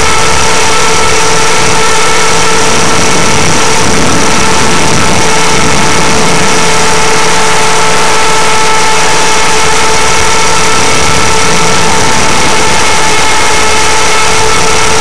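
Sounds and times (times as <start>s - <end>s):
electric motor whine: 0.0s - 15.0s
rotor and wind rushing: 0.0s - 15.0s.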